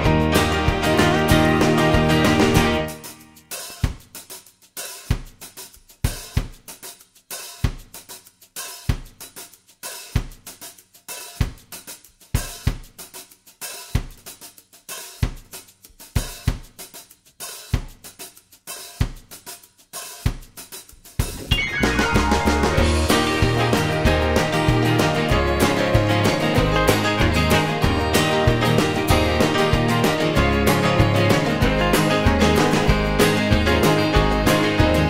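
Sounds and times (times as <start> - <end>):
drum kit beat: 0.0 - 35.0.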